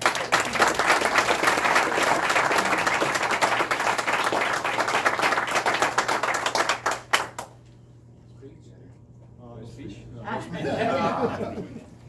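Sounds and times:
small group applauding: 0:00.0 - 0:07.7.

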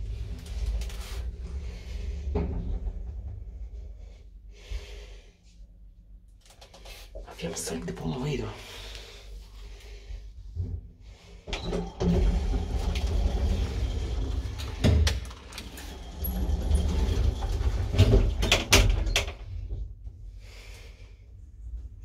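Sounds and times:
elevator running with low rumble: 0:00.0 - 0:04.5, 0:10.4 - 0:22.0
elevator doors knocking and clattering: 0:02.0 - 0:03.7, 0:11.5 - 0:20.4.

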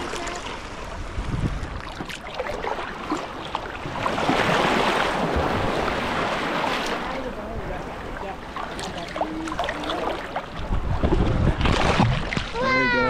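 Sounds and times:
rushing water and wind: 0:00.0 - 0:13.0.

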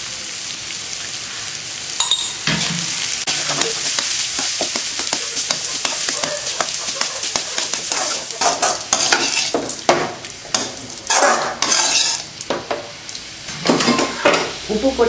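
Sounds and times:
oil sizzling: 0:00.0 - 0:15.0
spatula scraping metal pan: 0:02.5 - 0:09.8, 0:10.5 - 0:12.3.

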